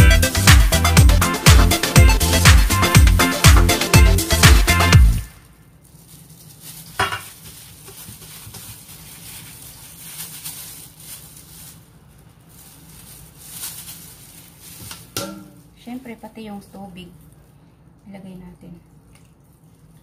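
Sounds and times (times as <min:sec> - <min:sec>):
cabbage rustling and squishing: 0:05.3 - 0:20.0.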